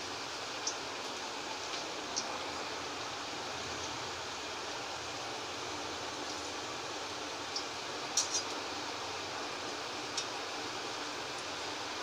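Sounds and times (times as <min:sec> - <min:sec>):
deep-frying sizzle in oil: 0:00.0 - 0:12.0.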